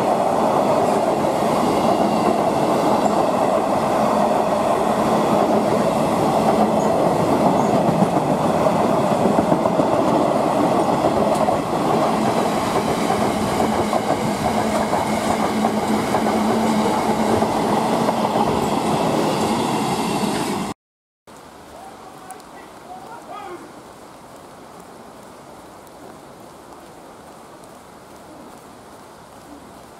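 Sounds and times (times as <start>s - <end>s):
freight train wheels on rails: 0.0s - 20.8s.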